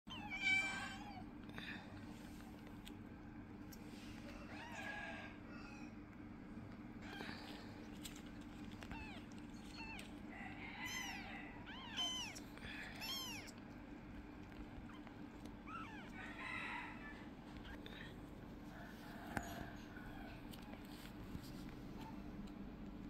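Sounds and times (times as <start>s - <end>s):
kittens mewing: 0.1s - 1.4s, 7.0s - 7.9s, 8.8s - 18.0s.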